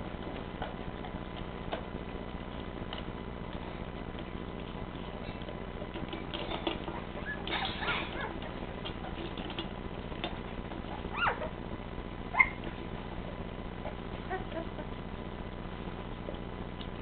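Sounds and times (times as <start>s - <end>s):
puppies scrabbling and shuffling: 0.0s - 17.0s
high puppy squeaks: 6.4s - 8.4s, 10.9s - 11.6s, 12.3s - 12.7s.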